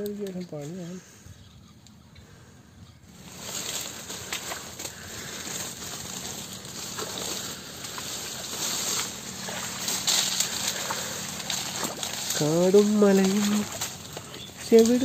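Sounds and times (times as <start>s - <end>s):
leaves and branches rustling: 0.0s - 15.0s
dry twigs crackling: 3.0s - 15.0s.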